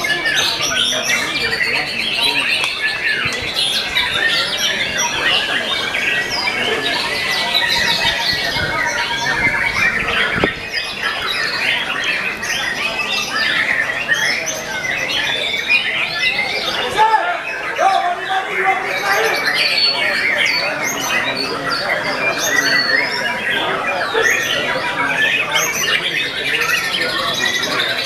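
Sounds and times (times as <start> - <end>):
many songbirds singing: 0.0 - 28.0.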